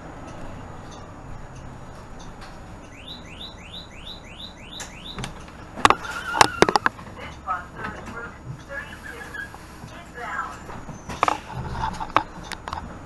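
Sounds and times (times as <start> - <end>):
bus doors opening with clacks: 0.0 - 13.0
rising electronic chirps: 2.8 - 5.2.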